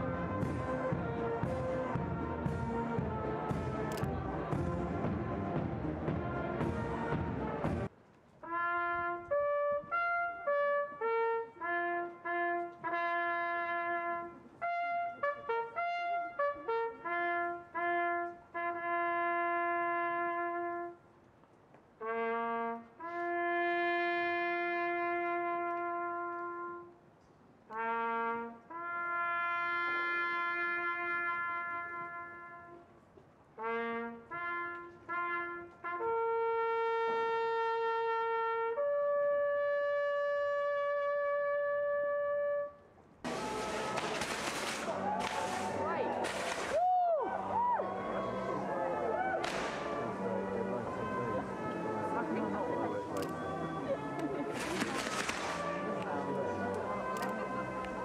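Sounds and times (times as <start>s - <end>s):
solo trumpet bugle call: 8.4s - 21.0s, 22.0s - 27.0s, 27.7s - 32.9s, 33.6s - 44.3s.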